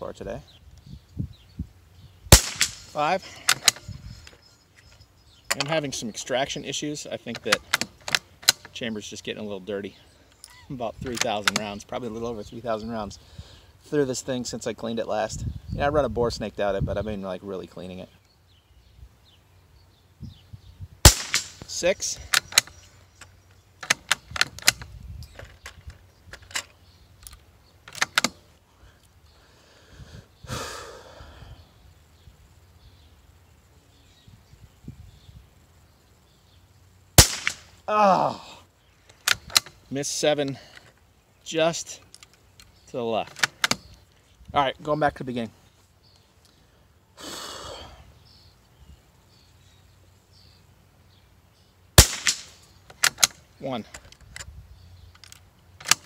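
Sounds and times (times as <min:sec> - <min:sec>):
rifle shot crack: 0:02.3 - 0:03.9, 0:21.0 - 0:22.7, 0:37.2 - 0:37.8, 0:52.0 - 0:53.2
rifle bolt metallic clicks: 0:02.3 - 0:05.8, 0:07.3 - 0:08.8, 0:10.3 - 0:11.9, 0:21.0 - 0:29.2, 0:37.2 - 0:37.8, 0:39.0 - 0:39.8, 0:42.0 - 0:44.5, 0:52.0 - 0:56.0
faint bird chirps: 0:03.9 - 0:07.2, 0:08.8 - 0:11.0.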